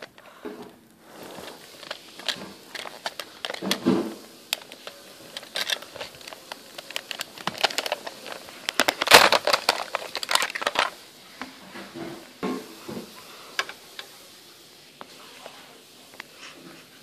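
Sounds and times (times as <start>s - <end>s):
plastic toys clicking and clattering: 0.0s - 11.0s, 13.6s - 14.2s
loud crackling rustle: 1.0s - 11.0s.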